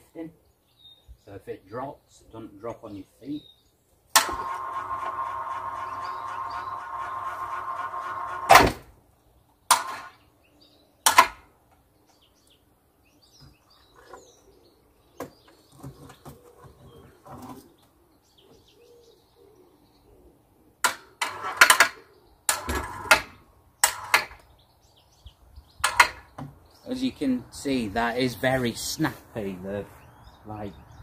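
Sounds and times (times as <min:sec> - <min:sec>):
electric hoist clacking: 0:04.2 - 0:08.8.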